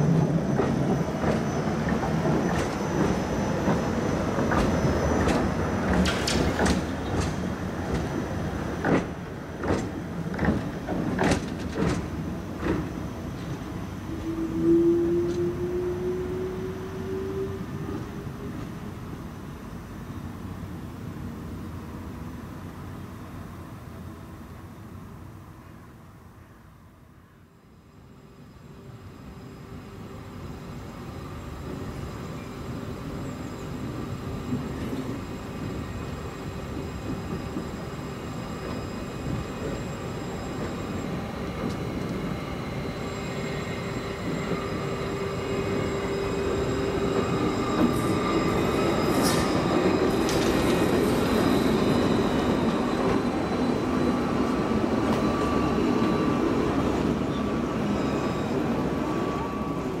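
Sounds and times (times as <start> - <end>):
tram rumble: 0.0 - 60.0
motor whine and wheel squeal: 31.1 - 60.0.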